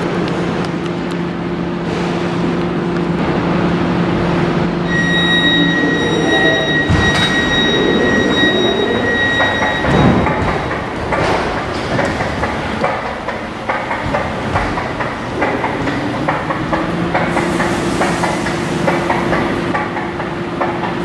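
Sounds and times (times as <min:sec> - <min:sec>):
train equipment humming: 0:00.0 - 0:21.0
high steady tone: 0:04.8 - 0:10.4.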